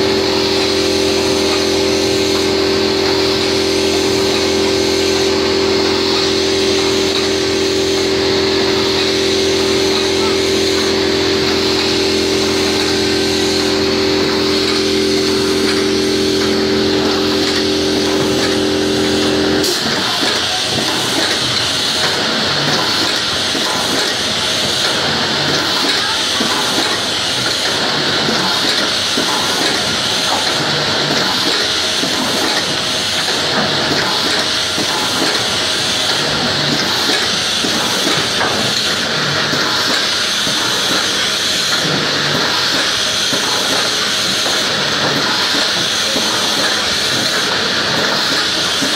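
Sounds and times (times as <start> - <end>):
steady hum: 0.0 - 21.5
air hissing through hoses: 0.0 - 48.9
grainy mechanical noise: 0.0 - 48.9
machine running noise: 0.0 - 48.9.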